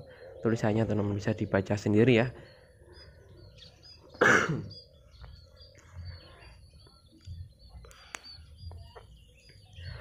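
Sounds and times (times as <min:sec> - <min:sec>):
faint bird chirps: 0:00.0 - 0:10.0
man clearing his throat: 0:04.2 - 0:04.8.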